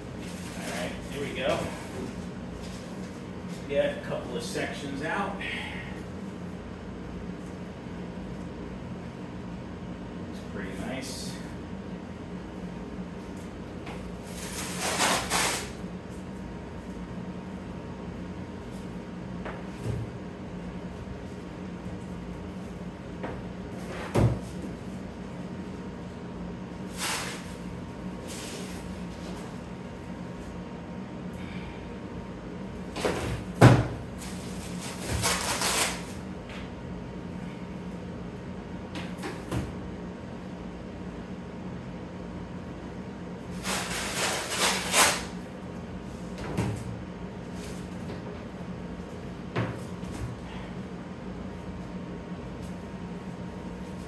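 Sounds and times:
steady low hum: 0:00.0 - 0:54.0
cardboard and packing rustling: 0:00.2 - 0:03.2.

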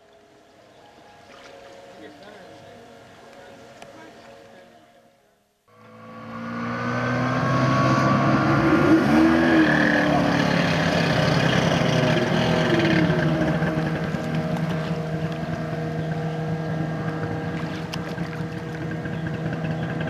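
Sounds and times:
jet ski engine revving: 0:05.7 - 0:20.0.

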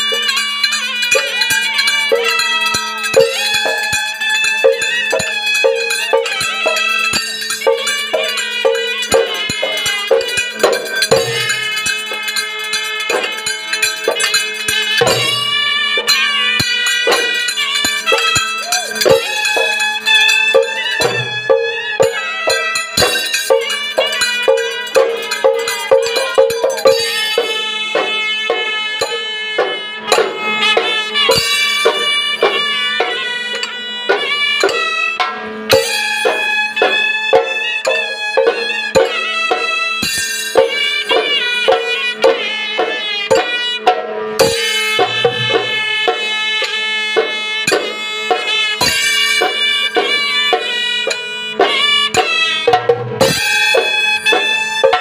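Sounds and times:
barrel drums beating: 0:00.0 - 0:55.0
reed pipe melody: 0:00.0 - 0:55.0
small hand cymbals clashing: 0:00.0 - 0:55.0
deep drum strokes: 0:44.4 - 0:46.0.

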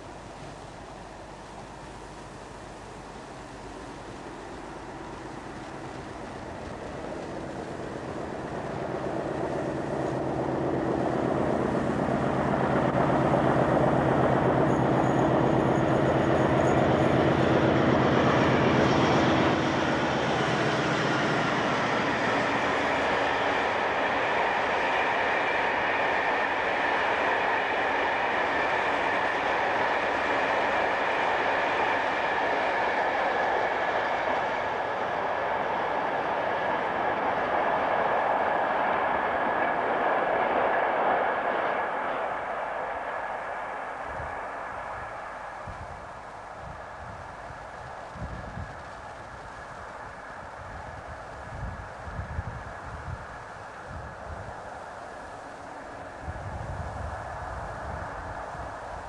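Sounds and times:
diesel locomotive engine passing: 0:00.0 - 0:59.0
thin high whine: 0:00.0 - 0:59.0.

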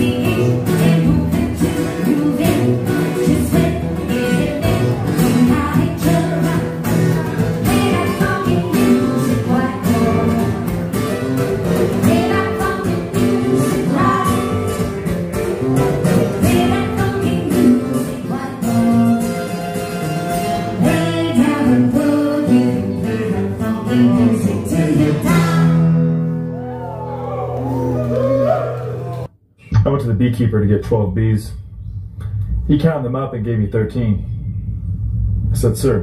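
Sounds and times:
people singing: 0:00.0 - 0:10.5, 0:20.8 - 0:26.1
acoustic guitar strumming: 0:00.0 - 0:27.2.

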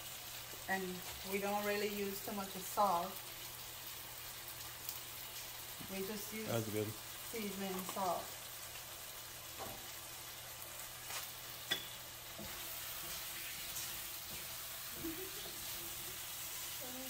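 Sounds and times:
potatoes sizzling in pan: 0:00.0 - 0:17.0
spoon clicking on pan: 0:11.7 - 0:12.0.

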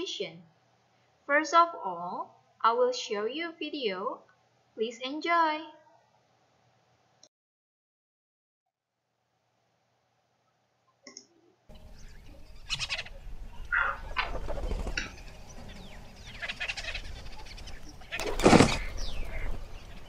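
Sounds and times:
cartoon birds chirping: 0:11.8 - 0:20.0.

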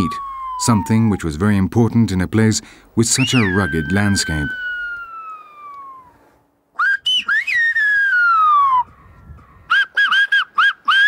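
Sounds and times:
loud finger whistling: 0:03.2 - 0:06.2, 0:06.8 - 0:08.9, 0:09.7 - 0:11.0.

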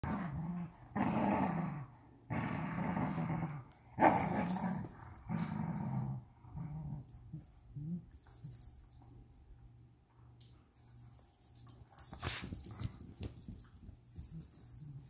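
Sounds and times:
dogs play-growling: 0:00.0 - 0:08.7.

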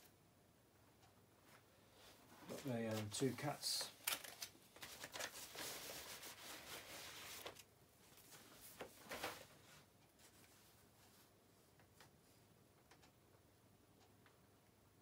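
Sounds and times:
plastic packaging rustling: 0:02.4 - 0:07.6.

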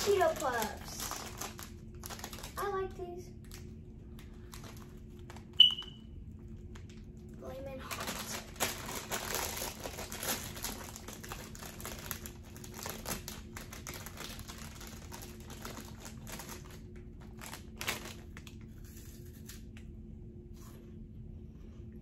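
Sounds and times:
snack bag crinkling: 0:00.0 - 0:02.8, 0:03.4 - 0:05.6, 0:07.8 - 0:19.7.

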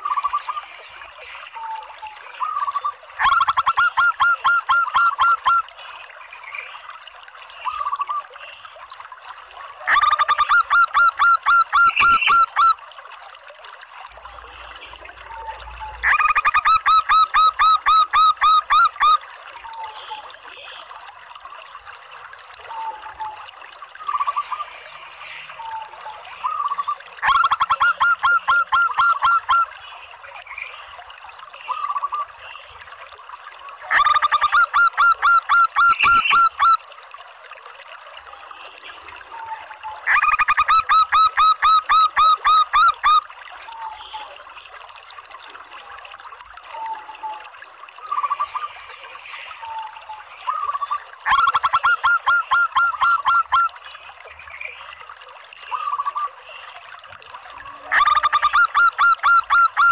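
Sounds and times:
dove calling staccato notes: 0:02.5 - 0:05.6, 0:27.2 - 0:29.6, 0:50.5 - 0:53.7.

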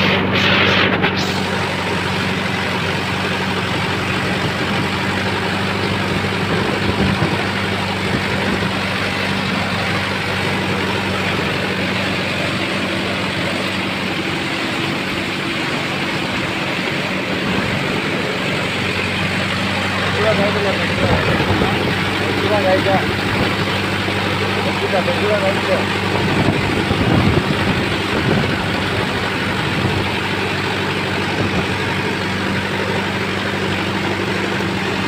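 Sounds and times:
tractor engine running: 0:00.0 - 0:35.0.

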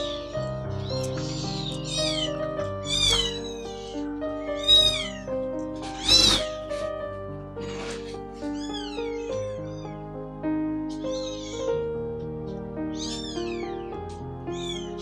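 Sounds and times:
kitten mewing: 0:00.0 - 0:06.9, 0:07.6 - 0:09.9, 0:10.9 - 0:11.6
music of sustained notes: 0:00.0 - 0:15.0.

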